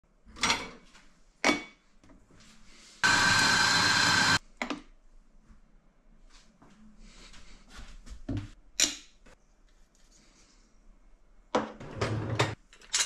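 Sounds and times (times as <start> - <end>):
coffee grinder whining: 3.0 - 4.4.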